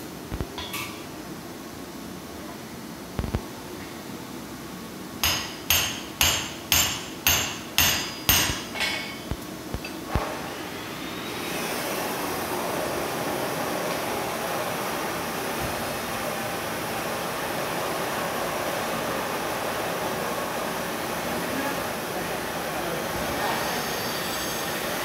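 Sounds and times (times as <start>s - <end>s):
hammer ringing on anvil: 5.2s - 9.2s.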